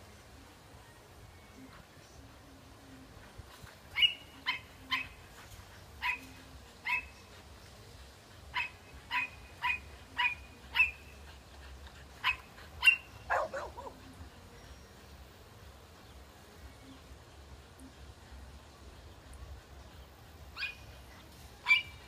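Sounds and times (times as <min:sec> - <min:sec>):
dog barking: 0:06.0 - 0:07.2, 0:08.5 - 0:11.0, 0:12.2 - 0:14.0, 0:21.6 - 0:22.0.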